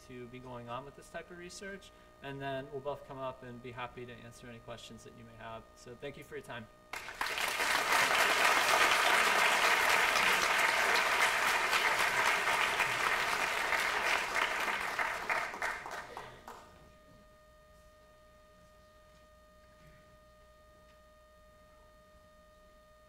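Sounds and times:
audience applauding: 0:07.0 - 0:16.7.

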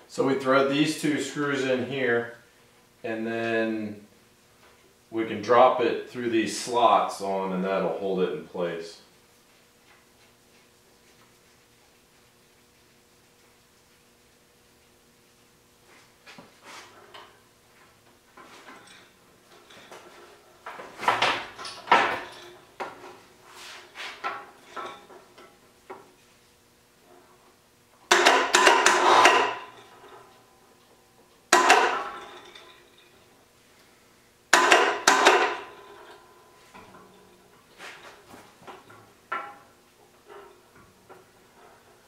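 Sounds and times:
metal clanking and scraping: 0:18.3 - 0:26.2, 0:28.1 - 0:30.6, 0:31.5 - 0:33.4, 0:34.5 - 0:42.0.

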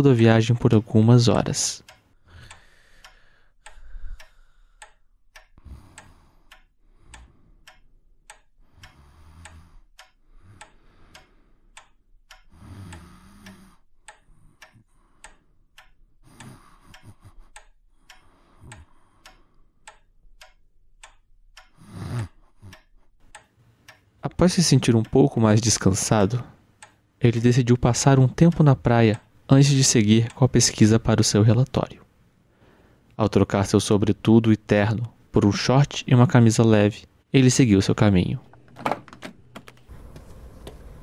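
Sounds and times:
pendulum clock ticking: 0:00.0 - 0:32.2.

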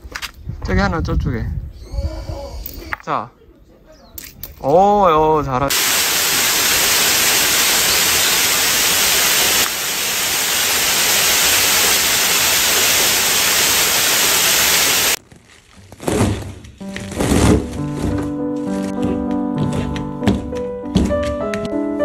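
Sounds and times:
water cascading down rock: 0:05.7 - 0:15.2.

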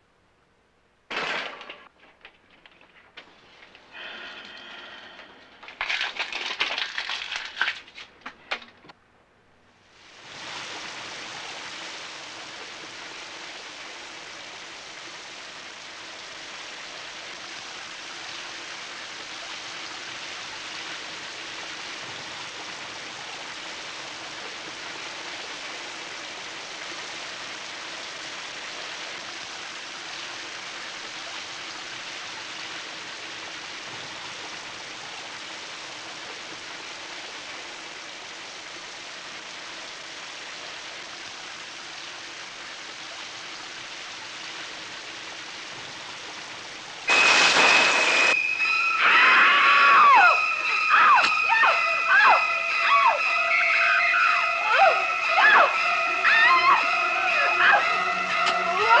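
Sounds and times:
shower water spraying: 0:03.2 - 0:08.1, 0:09.9 - 0:59.0.

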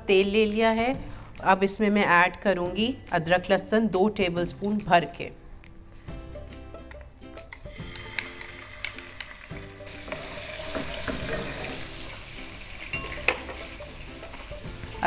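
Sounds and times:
paste sizzling in hot oil: 0:07.6 - 0:15.0.

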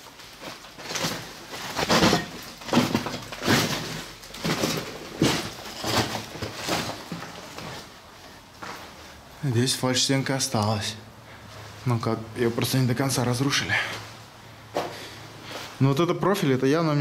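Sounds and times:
footsteps crunching over rubble: 0:00.0 - 0:09.3.

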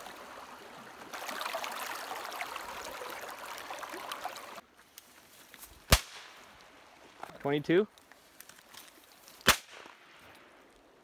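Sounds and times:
creek water running over stones: 0:00.0 - 0:09.5
sharp crack: 0:05.8 - 0:06.5, 0:09.4 - 0:10.4.

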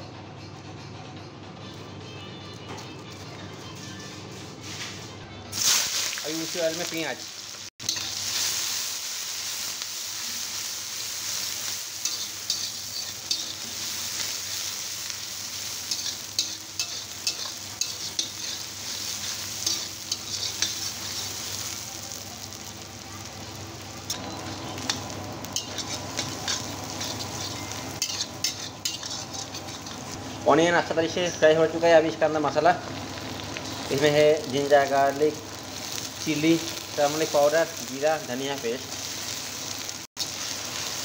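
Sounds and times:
onions sizzling in oil: 0:05.5 - 0:41.0
spatula scraping a pan: 0:15.6 - 0:21.5, 0:25.6 - 0:30.4.

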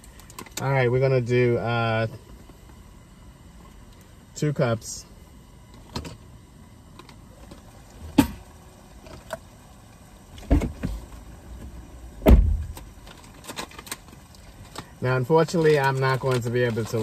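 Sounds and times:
objects thumping in a car: 0:08.0 - 0:08.4, 0:10.4 - 0:13.8.

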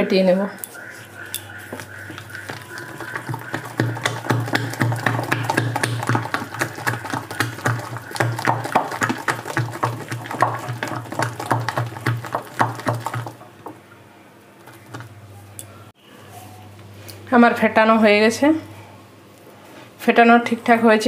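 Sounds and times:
hand slapping wet batter: 0:01.3 - 0:13.8, 0:14.6 - 0:15.2.

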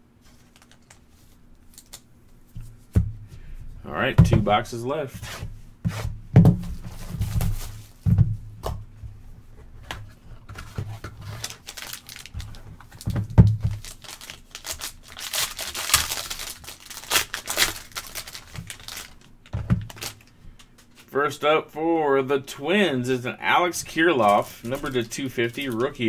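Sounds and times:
foil wrapper crinkling and tearing: 0:01.7 - 0:02.0, 0:11.2 - 0:20.4, 0:24.2 - 0:26.0
cardboard and plastic wrap rubbing: 0:10.6 - 0:20.3, 0:23.8 - 0:26.0.

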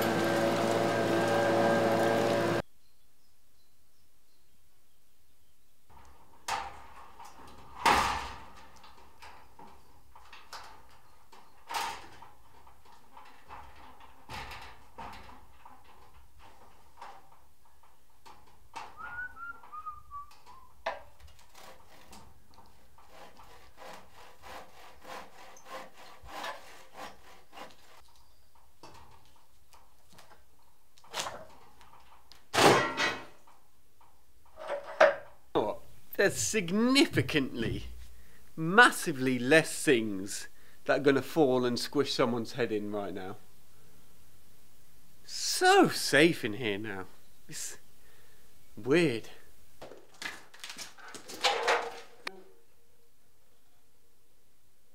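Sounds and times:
handsaw cutting wood: 0:00.0 - 0:02.6, 0:21.4 - 0:22.2, 0:22.8 - 0:28.0.

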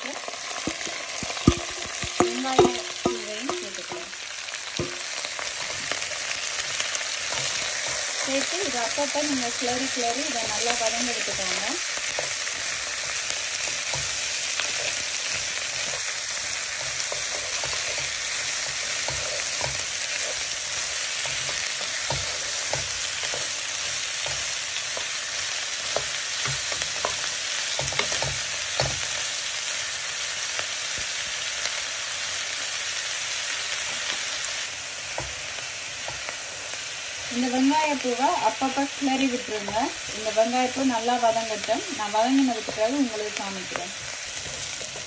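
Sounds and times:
onions sizzling in oil: 0:00.0 - 0:45.0
wooden spatula scraping a pan: 0:38.0 - 0:45.0.

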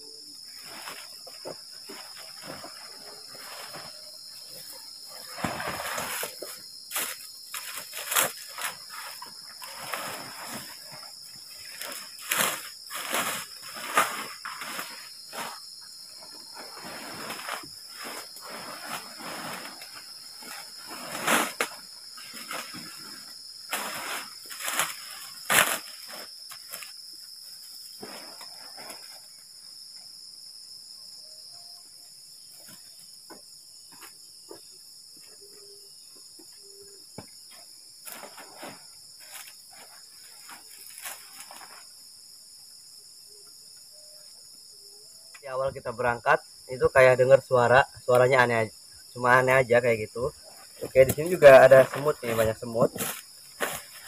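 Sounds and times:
crickets chirring: 0:00.0 - 0:54.0
rustling of tent nylon: 0:00.5 - 0:27.0, 0:38.0 - 0:42.0, 0:50.4 - 0:54.0.

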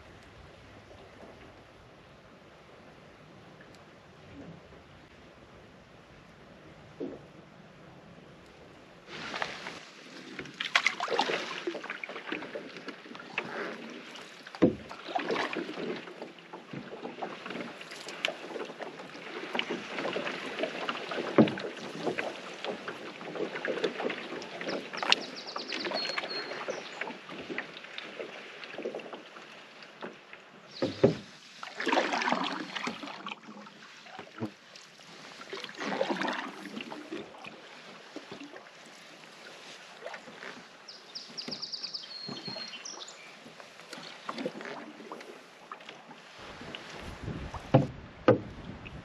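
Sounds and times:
paddle strokes swishing through water: 0:00.0 - 0:49.0
paddle knocking against canoe: 0:10.2 - 0:34.6, 0:39.4 - 0:49.0.

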